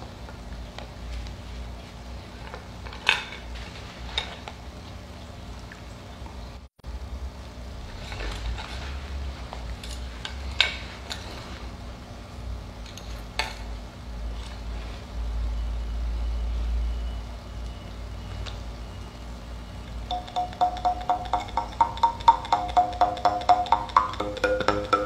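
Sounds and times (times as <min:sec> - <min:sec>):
mouth harp twanging: 0:20.1 - 0:25.0.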